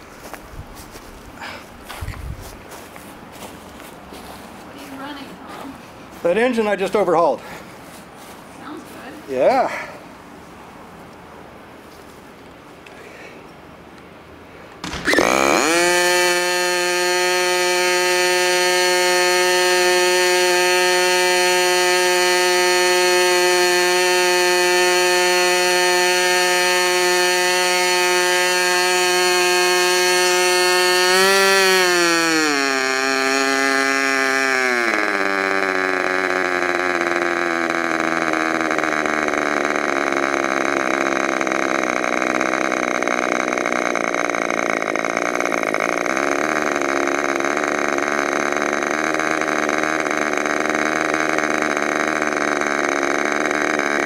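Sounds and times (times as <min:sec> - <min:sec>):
electric starter spinning: 0:04.7 - 0:07.7, 0:14.7 - 0:54.0
model airplane engine running: 0:14.8 - 0:54.0.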